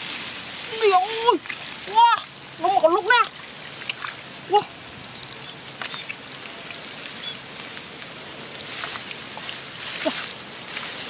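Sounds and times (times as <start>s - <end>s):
small wet clicks and drips: 1.1s - 11.0s
hands squelching through mud: 5.8s - 11.0s.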